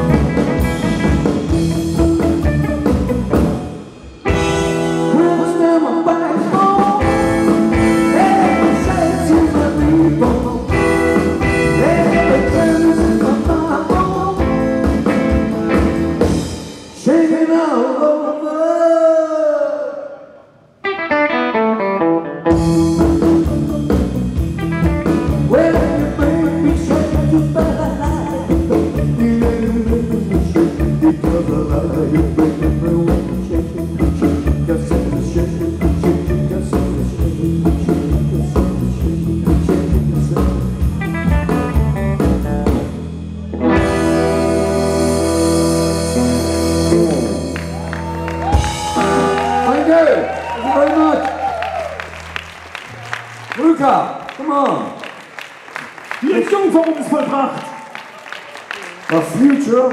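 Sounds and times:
rock band playing: 0.0s - 17.1s, 20.8s - 53.5s
man singing: 5.0s - 15.3s, 17.0s - 20.4s, 22.4s - 24.2s, 25.0s - 41.3s.

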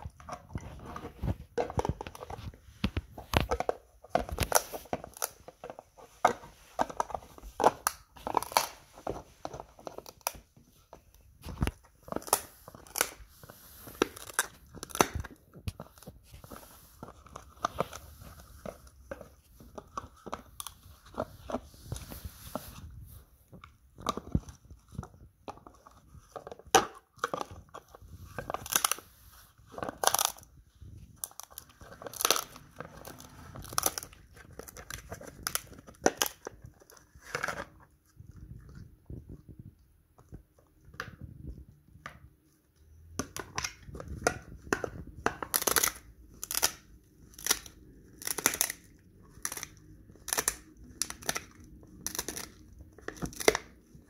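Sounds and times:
dog chewing a crunchy treat: 0.0s - 22.2s, 29.7s - 41.7s, 43.1s - 54.0s.

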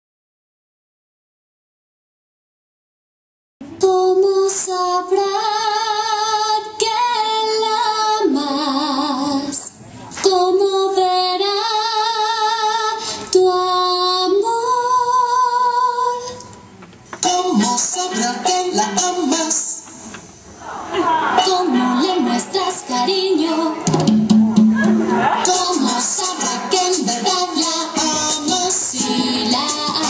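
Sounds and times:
woman singing with vibrato: 3.6s - 16.5s, 17.2s - 19.9s, 21.0s - 24.1s, 25.2s - 30.0s.

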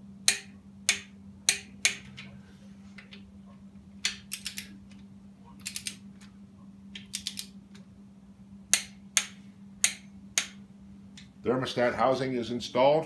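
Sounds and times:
socket ratchet clicking: 4.0s - 4.7s, 5.6s - 6.0s, 7.0s - 7.5s.

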